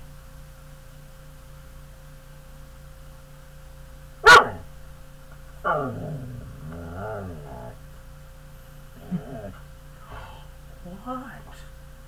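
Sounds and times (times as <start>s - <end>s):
dog barking: 4.2s - 4.8s, 5.6s - 7.8s
dog howling: 4.2s - 4.8s, 5.5s - 7.9s, 8.9s - 10.5s.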